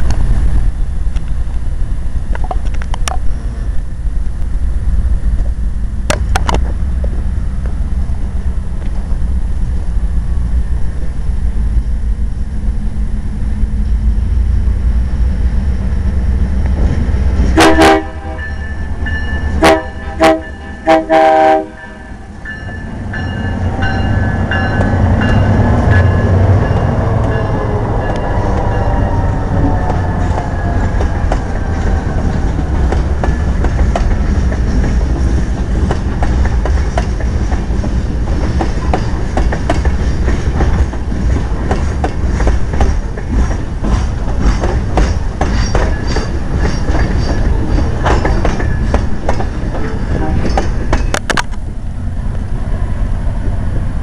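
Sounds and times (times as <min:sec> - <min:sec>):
diesel engines passing: 0:00.0 - 0:42.6
locomotive air horn blasts: 0:17.6 - 0:18.6, 0:19.6 - 0:22.3, 0:50.1 - 0:50.5
train wheels clacking over rail joints: 0:29.6 - 0:51.6.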